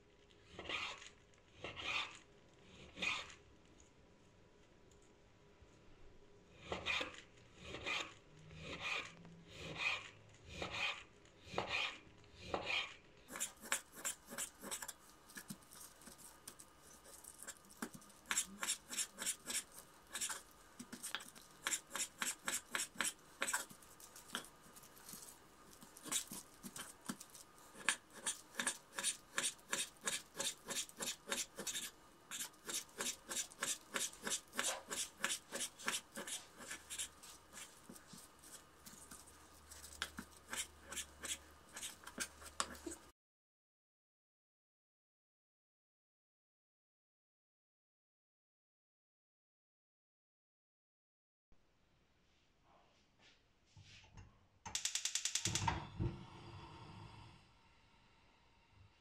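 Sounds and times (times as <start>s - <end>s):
knife slicing on cutting board: 6.7s - 16.2s, 17.0s - 24.5s, 26.0s - 39.1s.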